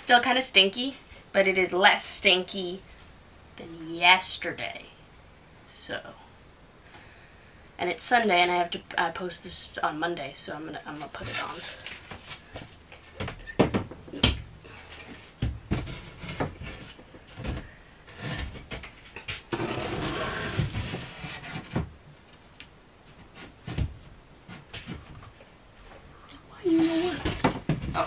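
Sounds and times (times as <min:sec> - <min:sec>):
wood scraping: 0:10.9 - 0:22.4
wooden knocks and bumps: 0:12.2 - 0:14.5, 0:15.1 - 0:19.7, 0:23.1 - 0:25.4, 0:27.0 - 0:28.0.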